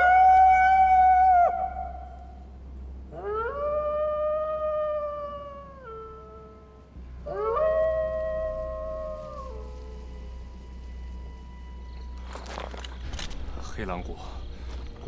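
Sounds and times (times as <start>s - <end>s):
wolf howling: 0.0s - 2.4s, 3.1s - 10.6s.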